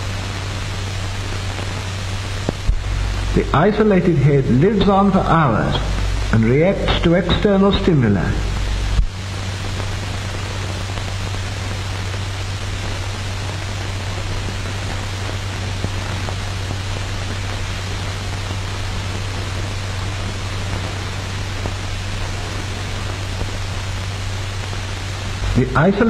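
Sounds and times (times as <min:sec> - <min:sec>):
film soundtrack hiss: 0:00.0 - 0:26.0
low hum: 0:01.6 - 0:15.7, 0:20.9 - 0:26.0.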